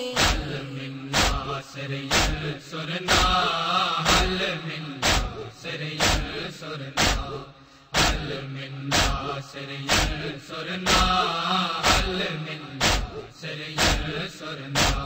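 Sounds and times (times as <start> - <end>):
men chanting a lament: 0.0 - 15.0
loud sharp strikes: 0.2 - 1.5, 2.1 - 2.5, 3.1 - 3.4, 4.0 - 4.4, 5.0 - 5.4, 6.0 - 6.4, 7.0 - 7.4, 8.0 - 8.3, 8.9 - 9.3, 9.9 - 10.3, 11.8 - 12.1, 12.8 - 13.2, 13.8 - 14.2, 14.8 - 15.0.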